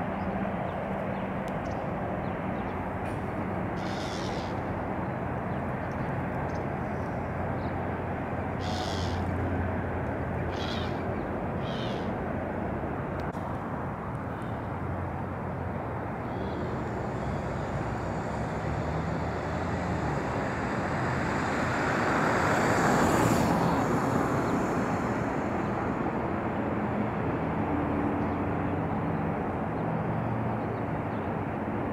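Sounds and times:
distant engine rumble: 0.0s - 29.8s
vehicle passing: 2.1s - 31.8s.

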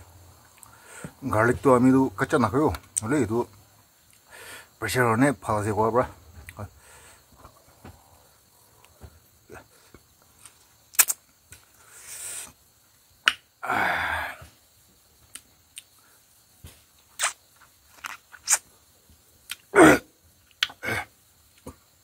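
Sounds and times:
man slurping snails: 10.9s - 11.2s, 17.2s - 17.4s, 18.0s - 18.6s.

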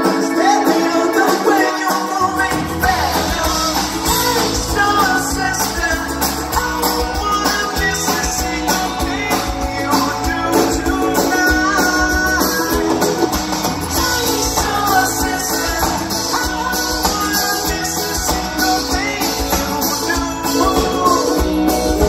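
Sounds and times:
lead vocals singing: 0.0s - 22.0s
live pop-rock band: 0.0s - 22.0s.

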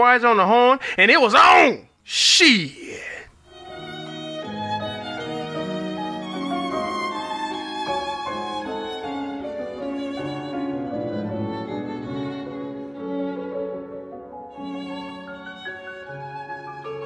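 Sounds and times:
violin playing held notes: 3.5s - 13.9s.

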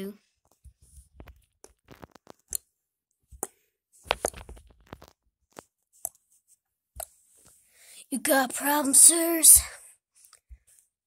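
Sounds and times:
plush toys rustling and clicking: 3.4s - 6.3s.

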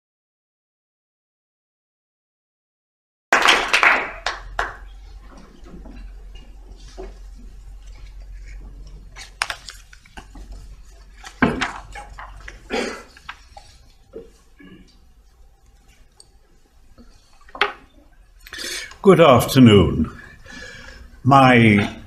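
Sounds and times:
low steady hum: 4.2s - 22.0s
paper sheets rustling: 6.8s - 14.6s.

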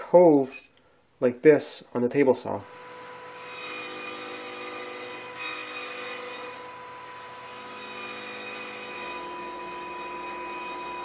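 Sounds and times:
table saw cutting wood: 2.6s - 11.0s.

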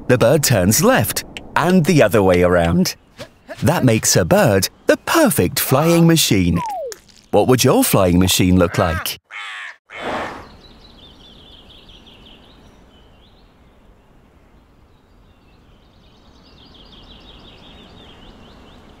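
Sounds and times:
low even hiss: 0.0s - 8.4s
small birds chirping: 2.6s - 19.0s.

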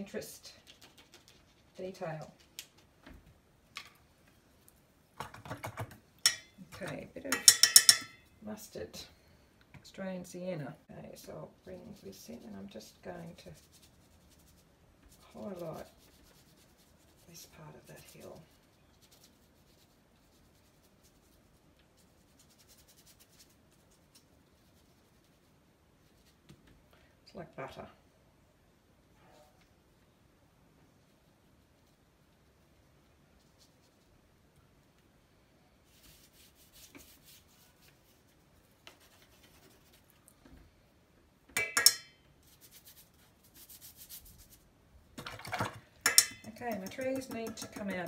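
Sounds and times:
brush clinking against jar: 6.2s - 8.2s, 41.6s - 42.2s, 46.0s - 48.0s
paintbrush scratching on paper: 11.6s - 26.4s, 33.3s - 34.2s, 35.8s - 40.2s, 42.4s - 44.6s, 46.5s - 48.0s.

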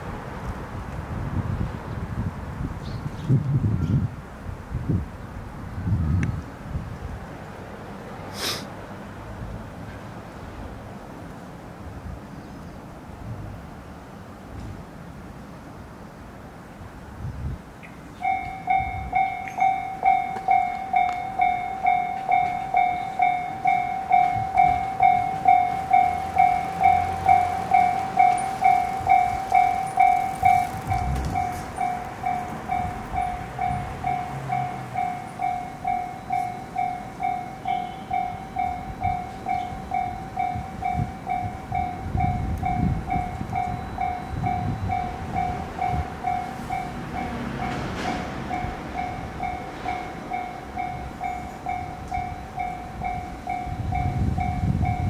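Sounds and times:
level-crossing warning bell: 18.2s - 55.0s.

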